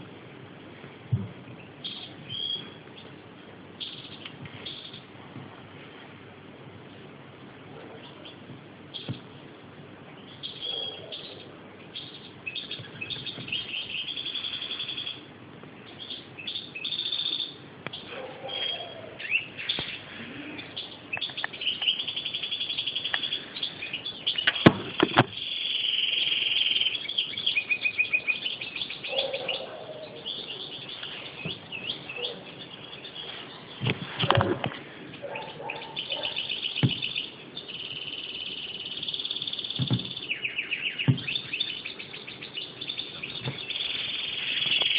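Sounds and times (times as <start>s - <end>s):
finch twittering and trilling: 1.6s - 3.2s, 3.8s - 5.1s, 10.2s - 44.9s
sharp knocks: 24.5s - 25.4s, 36.8s - 37.2s, 39.8s - 40.2s, 41.1s - 41.4s.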